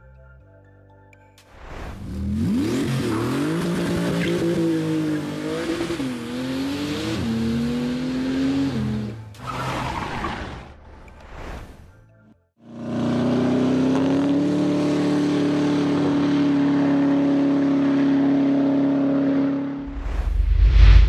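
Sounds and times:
deep low rumble: 19.8s - 21.0s.

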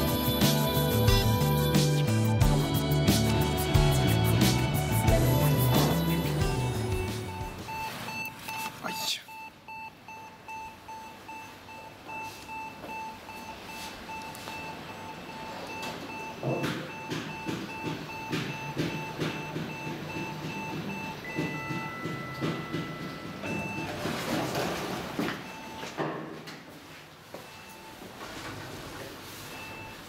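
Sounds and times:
electronic two-tone beeps: 5.5s - 23.9s.

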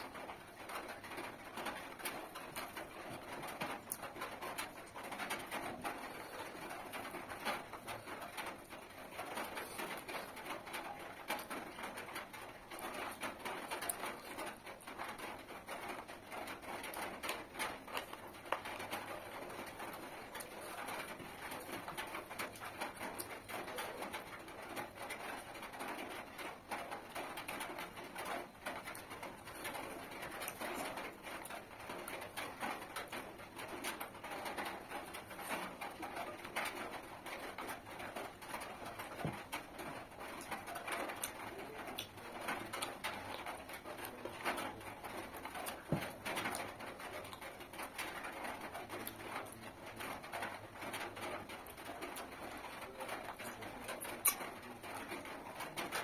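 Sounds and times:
chewing and lip smacking: 9.2s - 24.3s, 38.5s - 44.4s, 51.6s - 55.0s.

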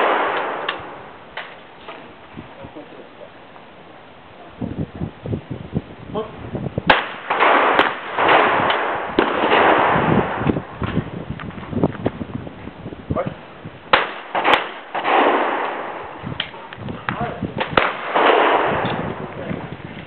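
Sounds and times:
shotgun shots: 0.0s - 1.0s, 6.9s - 10.5s, 13.9s - 16.2s, 17.6s - 19.4s.

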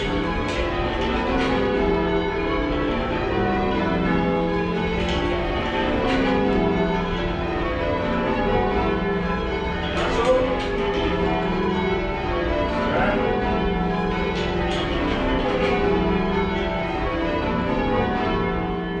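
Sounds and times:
church bells ringing: 0.0s - 19.0s.

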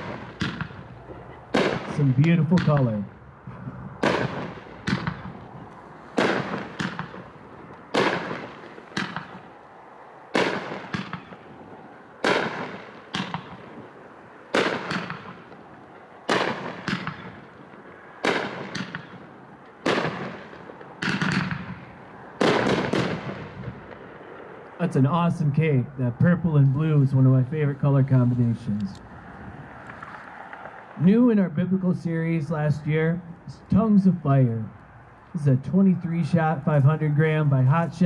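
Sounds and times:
firework bangs: 0.0s - 25.0s, 28.1s - 31.2s
soft firework pops: 12.2s - 13.6s.

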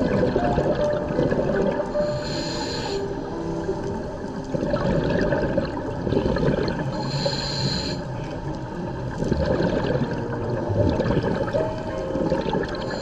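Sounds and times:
exhaled bubbles rushing: 0.0s - 2.1s, 4.4s - 7.1s, 8.5s - 13.0s
regulator inhalation hiss: 2.0s - 3.2s, 7.0s - 8.1s.

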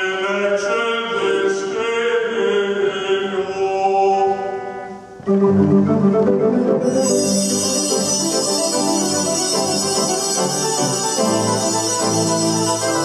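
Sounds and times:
pipe organ playing: 4.9s - 13.0s.

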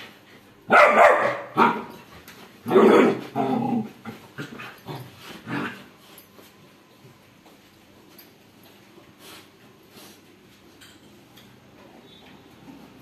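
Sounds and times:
puppy barking: 0.7s - 1.9s.

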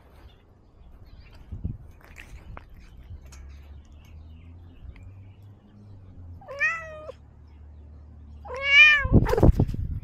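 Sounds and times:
cat meowing: 6.4s - 7.2s, 8.4s - 9.4s.

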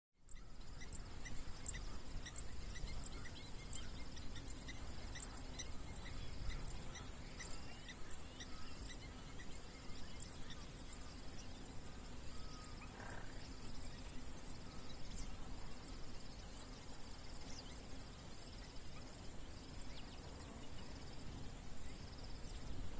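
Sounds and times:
longer animal call: 12.3s - 13.5s.

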